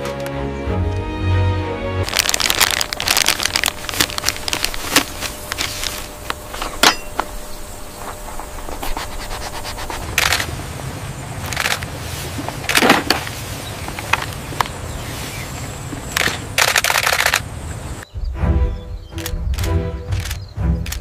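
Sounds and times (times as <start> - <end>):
plastic packaging crackling: 2.0 - 6.6.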